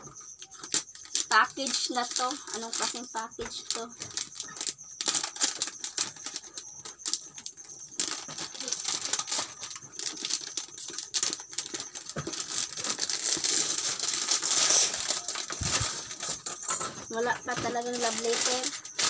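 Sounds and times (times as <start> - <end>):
plastic wrap crinkling: 0.4 - 19.0.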